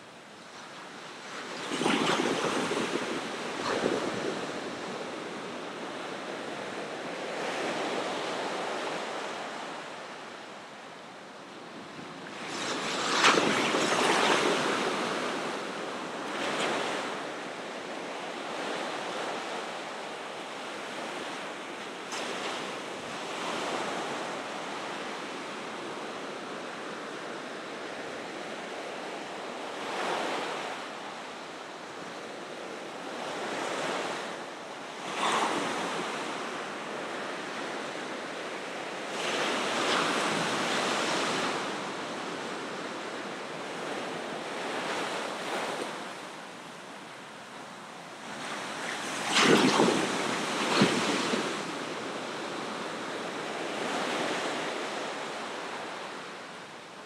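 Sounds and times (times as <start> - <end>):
ocean surf breaking on shore: 0.9 - 10.0, 11.8 - 19.4, 33.2 - 56.4.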